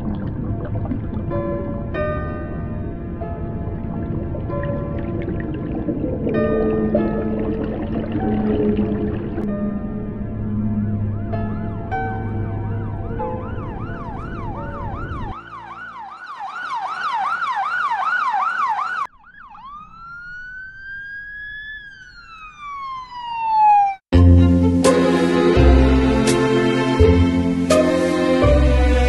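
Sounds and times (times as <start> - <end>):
music: 0.2 - 16.3, 24.1 - 29.0
siren wailing: 8.2 - 24.1.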